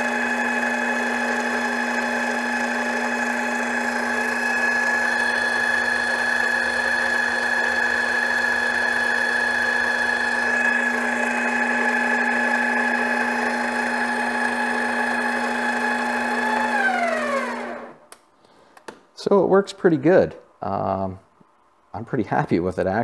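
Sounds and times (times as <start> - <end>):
lathe motor whining: 0.0 - 18.0.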